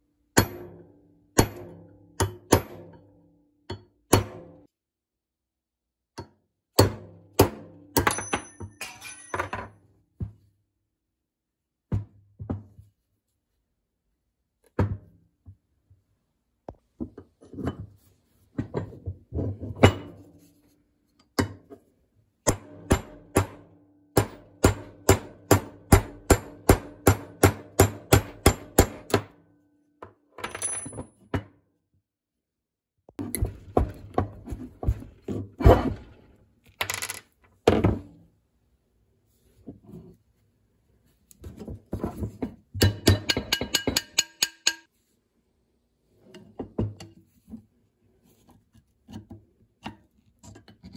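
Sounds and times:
hammer striking pin punch: 22.5s - 29.4s.

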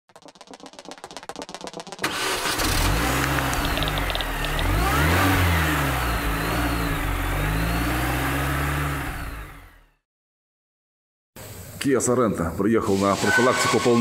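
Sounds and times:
car engine revving: 2.0s - 10.0s.

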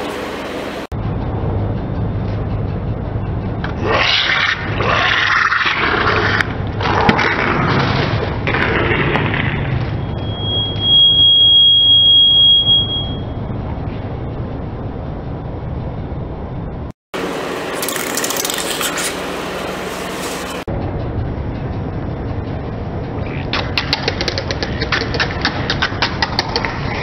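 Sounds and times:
high whistle-like tone: 10.0s - 13.4s.

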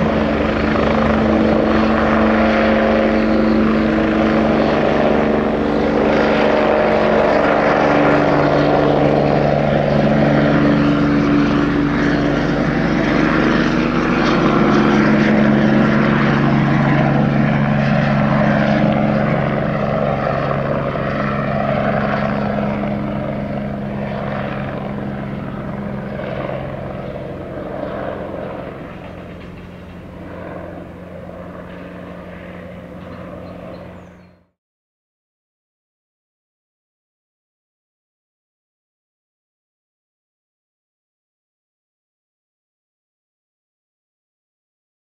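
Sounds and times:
helicopter flying away: 0.0s - 34.6s.

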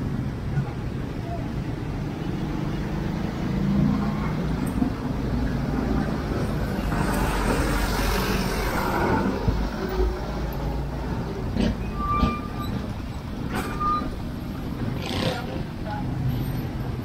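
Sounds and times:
vehicles passing: 0.0s - 17.0s.

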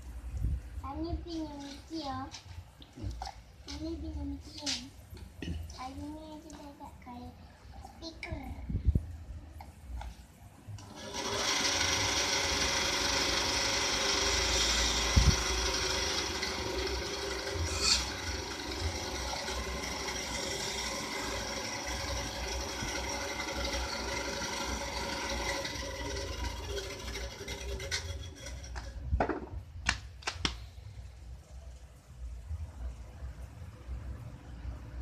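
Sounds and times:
bandsaw cutting wood: 10.8s - 28.9s.

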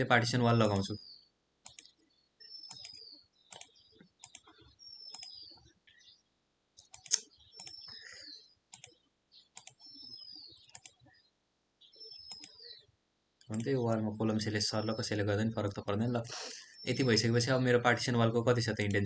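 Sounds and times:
computer mouse clicking: 1.6s - 2.0s, 2.6s - 5.4s, 6.8s - 8.0s, 8.7s - 11.1s, 12.2s - 12.6s, 13.4s - 13.8s.

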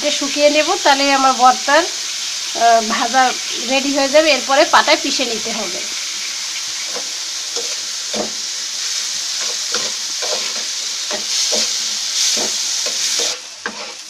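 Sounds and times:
vegetables sizzling in oil: 0.0s - 14.0s
metal spatula scraping pan: 9.3s - 14.0s.

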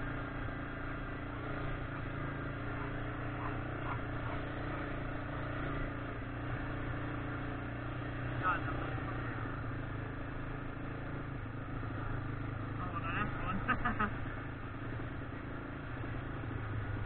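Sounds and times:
atv engine running: 0.0s - 17.0s.

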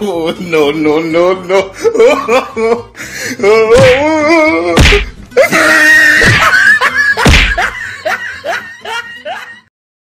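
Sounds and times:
men shouting and screaming: 3.6s - 6.6s
heavy thumps: 3.8s - 4.2s, 4.8s - 5.3s, 6.2s - 6.6s, 7.2s - 7.8s.

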